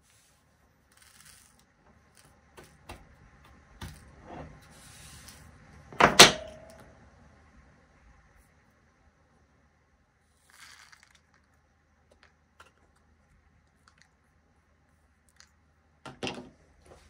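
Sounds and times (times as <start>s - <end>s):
brush swishing across tabletop: 4.2s - 5.5s.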